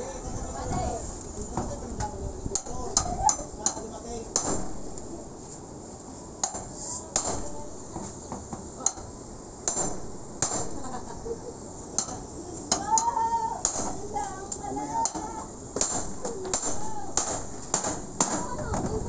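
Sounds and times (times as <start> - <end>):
hammer striking steel pry bar: 4.4 - 4.8, 6.4 - 7.6, 9.7 - 10.8, 12.0 - 14.0, 15.0 - 18.5.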